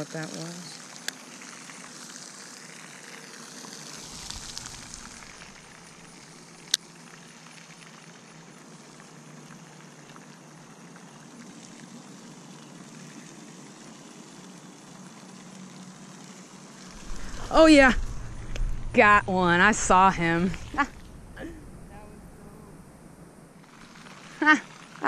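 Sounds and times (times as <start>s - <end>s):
fishing reel whirring: 0.0s - 7.3s.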